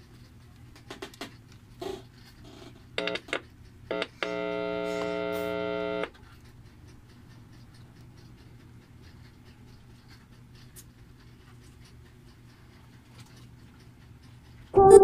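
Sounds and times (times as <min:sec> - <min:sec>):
light ticks: 0:06.0 - 0:14.7
steady electronic beep: 0:14.8 - 0:15.0.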